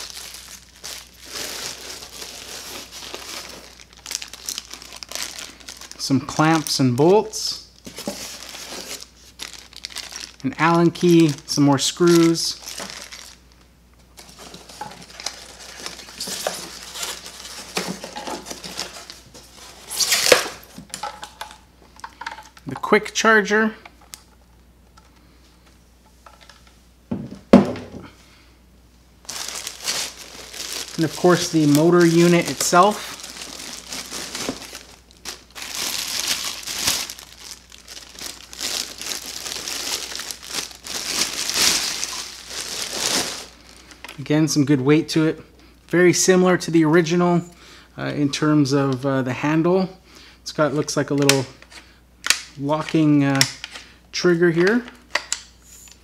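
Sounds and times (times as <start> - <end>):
plastic and cardboard rustling: 0.0 - 6.8, 7.8 - 13.5, 14.1 - 21.6, 29.2 - 44.2
plastic bag crinkling: 0.0 - 21.6, 29.2 - 44.2.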